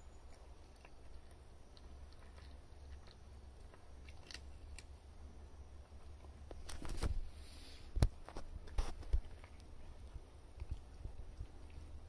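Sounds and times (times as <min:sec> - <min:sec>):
cat chewing dry kibble: 0:00.0 - 0:12.0
steady low hum: 0:00.0 - 0:12.0.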